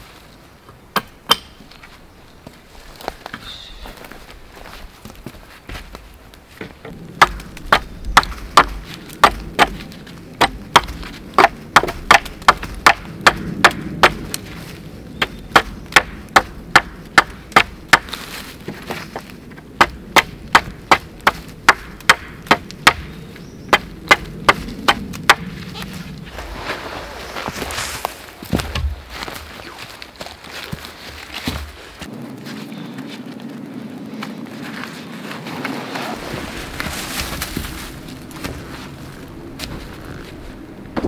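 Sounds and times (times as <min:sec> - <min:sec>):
wood being chopped: 0:00.9 - 0:01.6, 0:06.6 - 0:14.3, 0:15.2 - 0:23.1, 0:23.7 - 0:25.5, 0:28.4 - 0:29.4, 0:31.3 - 0:31.8.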